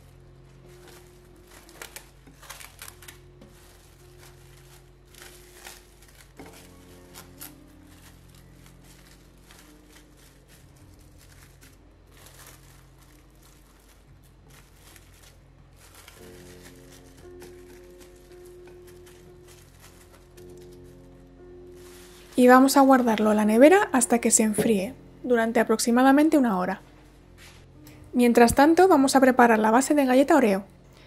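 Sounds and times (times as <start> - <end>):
cling film crinkling: 0.0 - 24.7
soft background music: 0.0 - 31.0.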